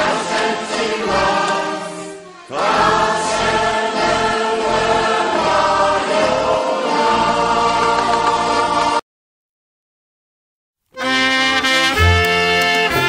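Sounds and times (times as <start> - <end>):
choir singing a folk song: 0.0 - 9.0.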